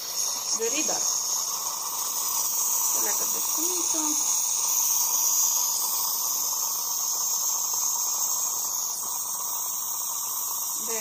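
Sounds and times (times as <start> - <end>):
coffee machine pump humming: 0.0 - 11.0.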